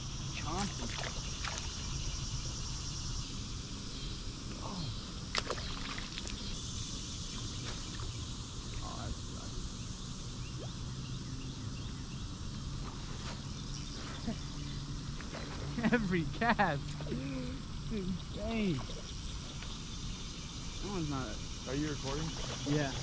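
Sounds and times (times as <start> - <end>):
insect drone: 0.0 - 23.0.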